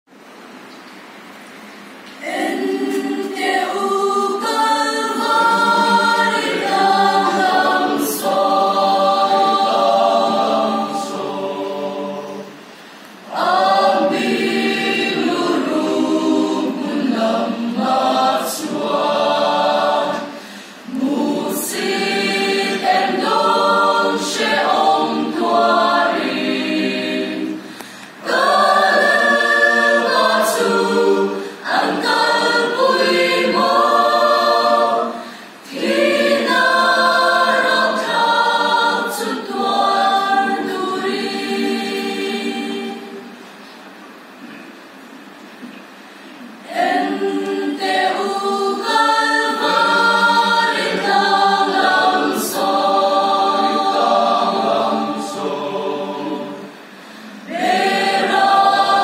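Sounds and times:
church choir singing a hymn: 2.2 - 43.6, 46.6 - 59.0.

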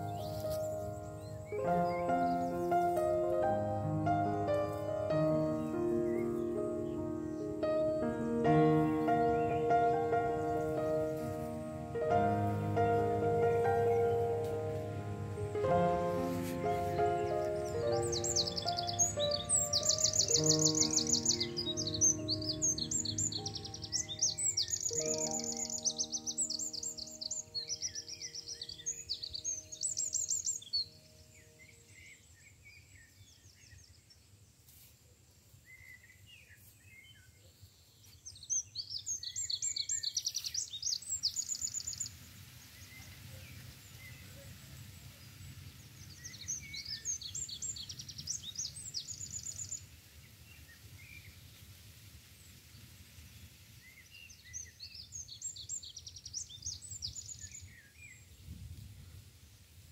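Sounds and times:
soft background music: 0.0 - 31.4
songbird trilling: 5.2 - 8.1, 16.4 - 31.0.

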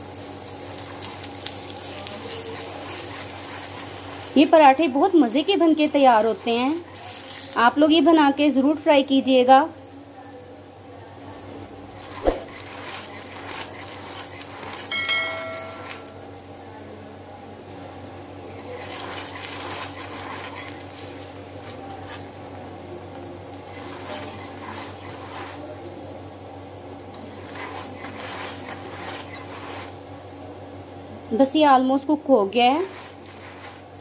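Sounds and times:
flatbread sizzling in ghee: 0.0 - 34.0
brief ringing tone: 14.9 - 16.3.

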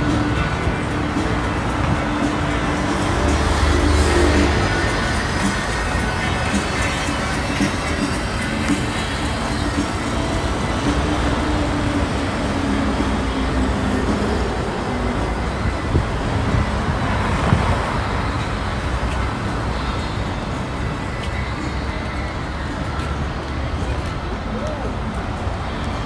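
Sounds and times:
city street traffic: 0.0 - 26.0.

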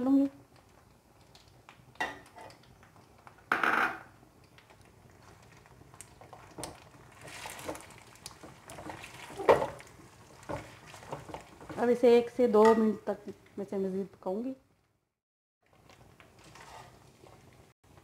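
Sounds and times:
wooden spatula stirring in metal pan: 5.2 - 12.5, 15.6 - 18.0.

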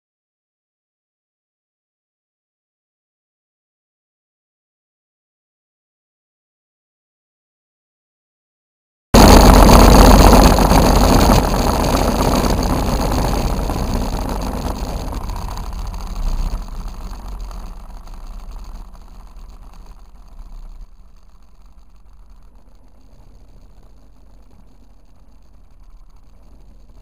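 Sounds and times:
powered parachute engine running: 9.2 - 27.0.

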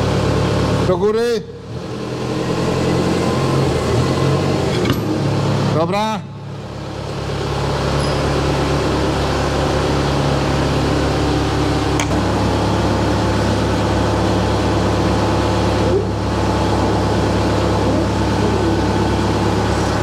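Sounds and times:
forklift engine idling: 0.0 - 20.0.

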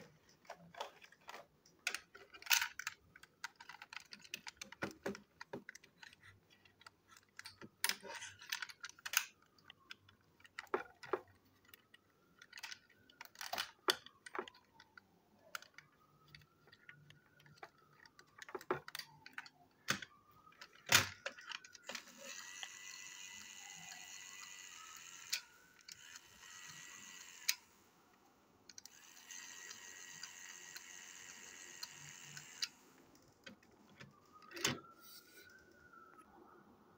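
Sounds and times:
plastic toy clicks and snaps: 6.8 - 11.2
toy electric motor whirring: 21.6 - 27.6, 28.8 - 32.8.

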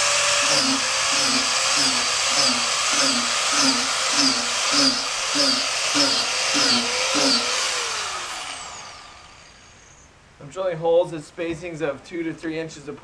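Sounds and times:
angle grinder drilling into log: 0.0 - 10.0.

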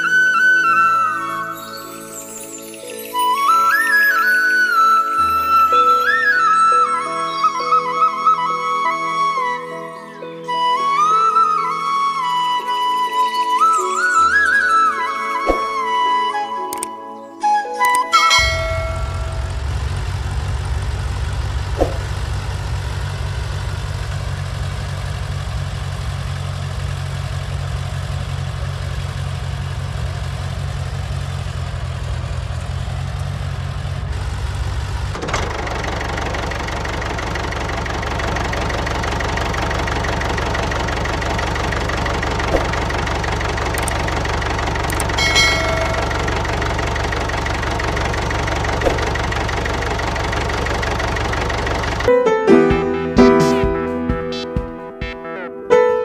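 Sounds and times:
engine high whine: 17.8 - 55.0
tractor engine chugging: 18.1 - 54.7.

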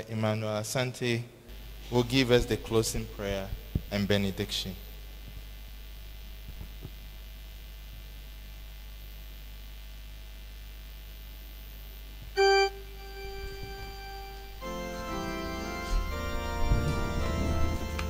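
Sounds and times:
faint steady hum: 0.0 - 18.0
organ note: 12.4 - 18.0.

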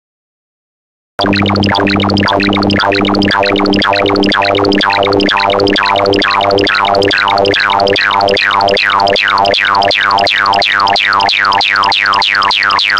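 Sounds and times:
steady low tone: 1.2 - 9.5
rapid synthesized beeps: 1.2 - 12.9.

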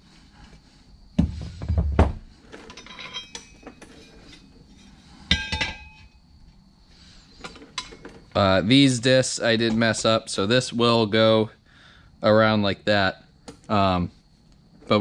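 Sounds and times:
steel parts clinking and clanking: 2.5 - 6.1, 7.4 - 8.2
metal ringing: 2.7 - 3.8, 5.3 - 6.2.

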